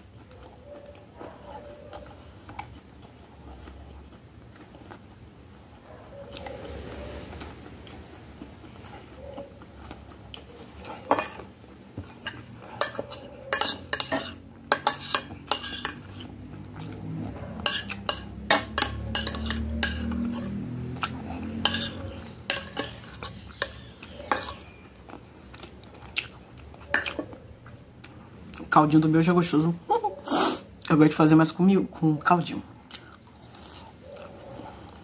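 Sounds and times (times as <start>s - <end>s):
metal spoon scraping glass plate: 12.2s - 16.4s, 17.6s - 20.6s, 21.6s - 24.7s.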